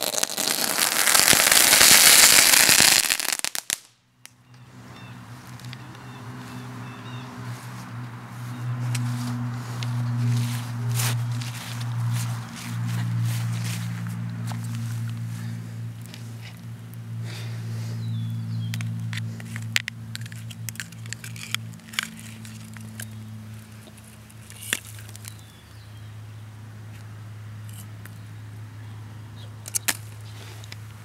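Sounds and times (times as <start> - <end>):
low hum: 4.0 - 24.6
sharp clicks and scuffs: 8.8 - 15.3, 18.6 - 25.4, 29.6 - 30.9.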